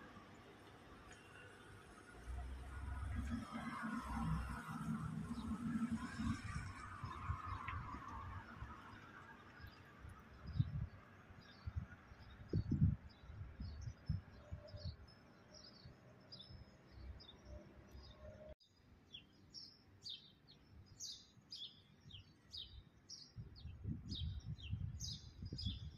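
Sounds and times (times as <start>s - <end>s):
small birds chirping: 8.8s - 25.9s.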